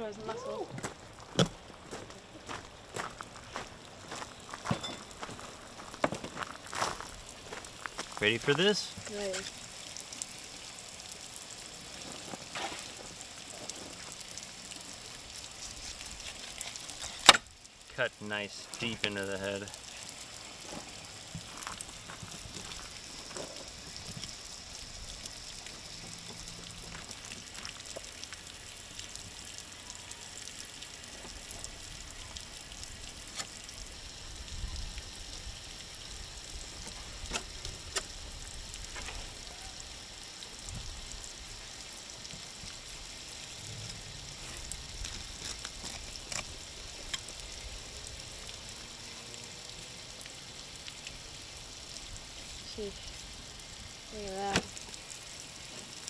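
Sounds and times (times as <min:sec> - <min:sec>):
faint crackling hiss: 0:00.0 - 0:56.0.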